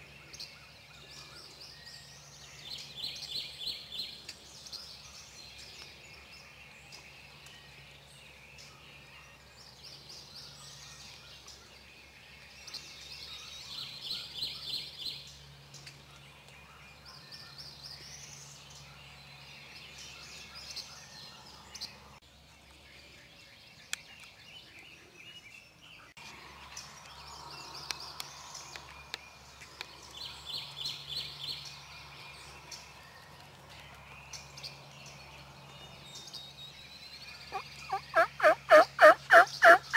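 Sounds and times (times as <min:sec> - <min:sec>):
songbirds chirping: 0:00.0 - 0:39.9
turkey gobbling: 0:37.5 - 0:39.9.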